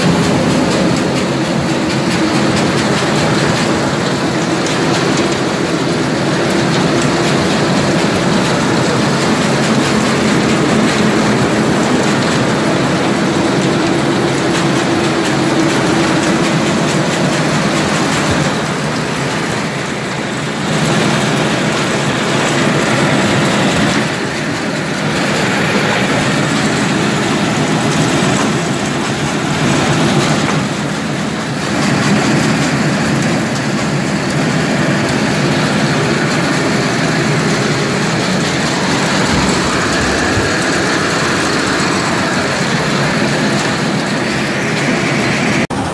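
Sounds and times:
mill machinery rumbling and clattering: 0:00.0 - 0:45.9.

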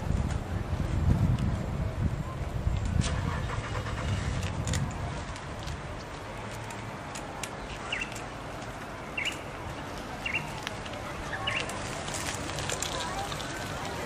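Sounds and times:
outdoor background noise: 0:00.0 - 0:14.0
bird chirping: 0:07.6 - 0:08.2, 0:09.2 - 0:09.5, 0:10.2 - 0:10.5, 0:11.3 - 0:11.7.

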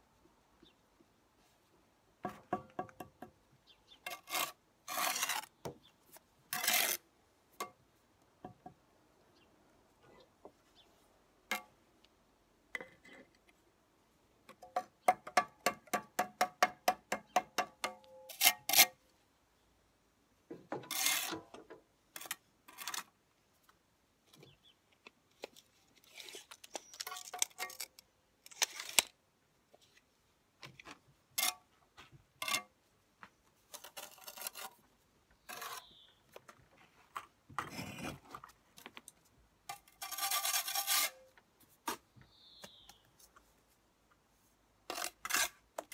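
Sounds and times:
steel scraping on mortar: 0:04.0 - 0:05.5, 0:06.5 - 0:07.0, 0:18.3 - 0:19.0, 0:20.8 - 0:21.4, 0:35.5 - 0:36.0, 0:39.7 - 0:41.3.

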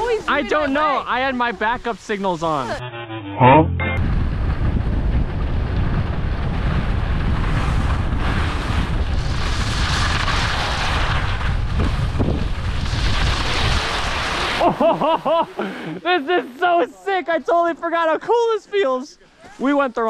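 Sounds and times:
wind buffeting microphone: 0:04.0 - 0:13.8.

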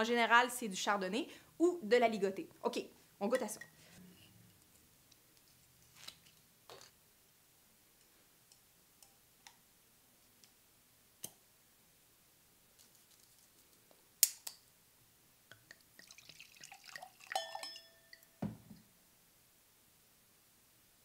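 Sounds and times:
wine pouring into glass: 0:16.0 - 0:18.3.

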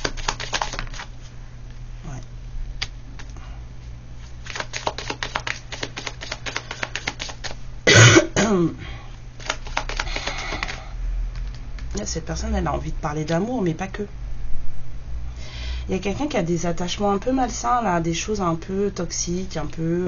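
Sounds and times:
cards being shuffled: 0:00.0 - 0:01.3, 0:04.2 - 0:07.6, 0:09.4 - 0:10.8
person coughing: 0:07.9 - 0:08.9.

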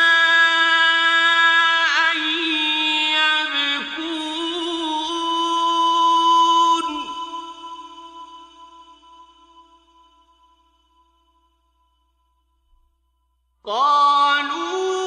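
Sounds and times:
man reciting melodically: 0:00.0 - 0:08.0, 0:13.7 - 0:15.0.

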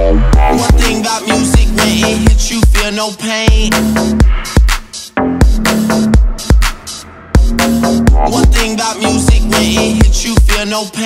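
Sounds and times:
heavy deep kick drum: 0:00.0 - 0:02.9, 0:03.5 - 0:10.6
vocal line: 0:00.0 - 0:04.1, 0:08.0 - 0:11.0
hip hop music: 0:00.0 - 0:11.0.

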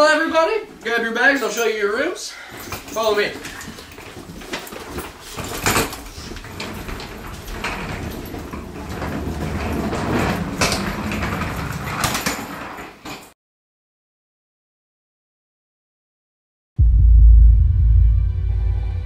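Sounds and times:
rustling bags: 0:02.4 - 0:13.2.

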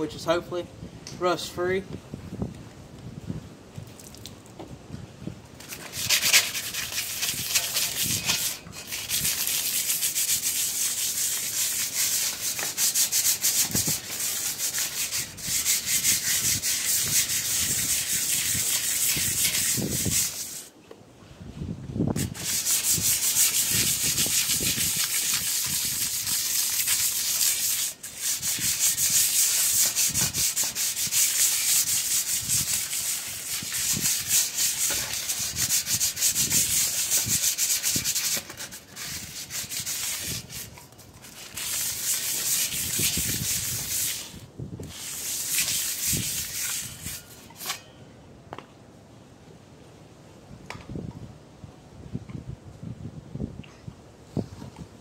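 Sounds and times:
sandpaper scrubbing metal: 0:05.6 - 0:20.7, 0:22.2 - 0:47.8.

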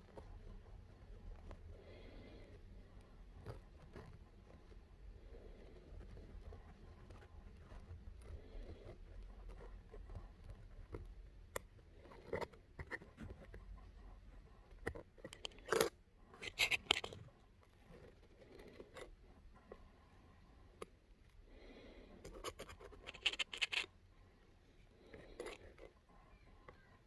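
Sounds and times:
fingers scratching skin: 0:14.8 - 0:17.2, 0:22.3 - 0:23.9.

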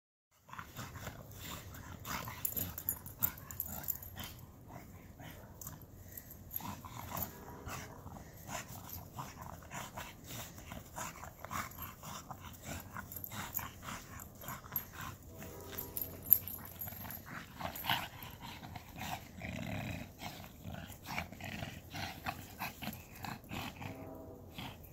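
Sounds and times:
dog heavy breathing: 0:00.4 - 0:24.9.

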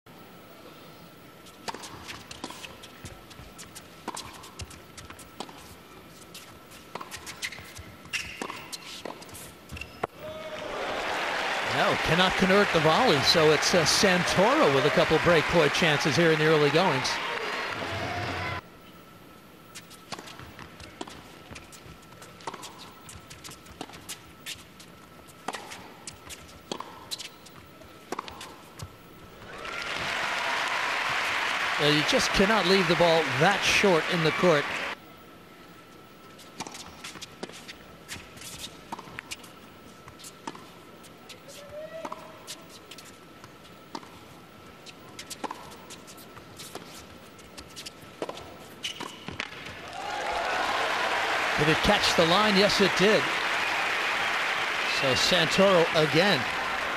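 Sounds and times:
tennis ball bouncing: 0:06.9 - 0:09.4, 0:22.1 - 0:24.2, 0:26.4 - 0:29.0, 0:40.1 - 0:40.7, 0:42.0 - 0:42.2, 0:43.0 - 0:44.2, 0:44.9 - 0:45.9, 0:47.8 - 0:49.7
racket striking tennis ball: 0:08.1 - 0:09.2.

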